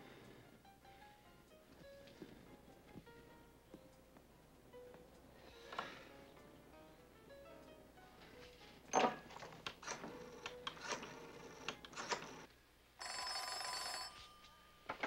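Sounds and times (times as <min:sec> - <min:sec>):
telephone bell ringing: 0:09.8 - 0:15.0.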